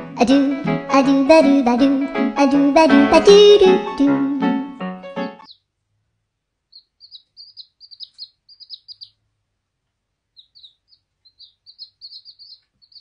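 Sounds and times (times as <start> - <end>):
chicks peeping: 5.2 - 5.7, 6.7 - 9.3, 10.3 - 13.0.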